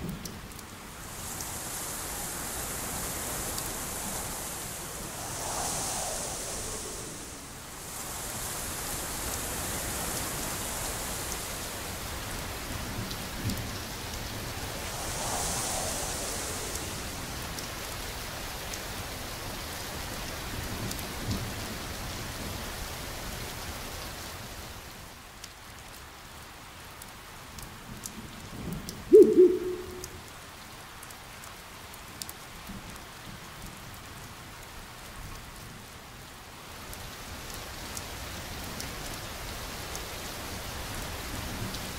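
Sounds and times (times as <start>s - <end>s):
rain hiss: 0.0s - 41.9s
water drips: 28.9s - 30.4s
loud low-pitched call: 29.1s - 30.2s.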